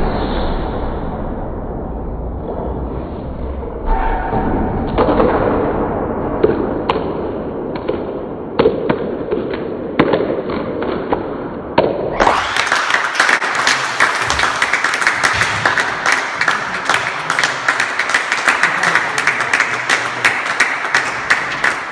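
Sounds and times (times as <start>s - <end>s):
applause: 12.2s - 21.9s.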